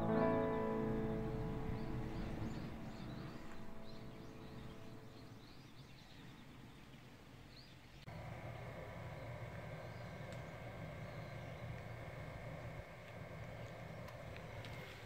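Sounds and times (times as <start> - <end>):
soft background music: 0.0 - 5.6
loud steady outdoor noise: 0.0 - 15.0
small birds chirping: 0.0 - 15.0.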